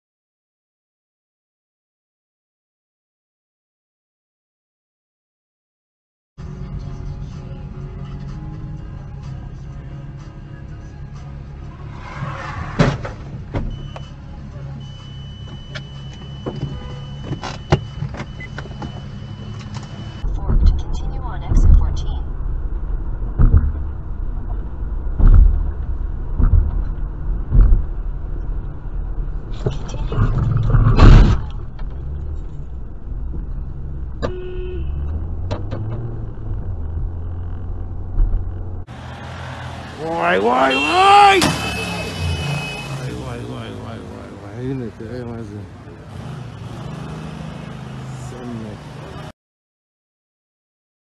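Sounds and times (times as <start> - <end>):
car engine and road drone: 6.4 - 49.3
high-pitched beep: 14.8 - 21.1
car horn toot: 15.7 - 18.0, 34.2 - 35.2, 39.3 - 43.5
loud thud of impact: 25.1 - 28.0.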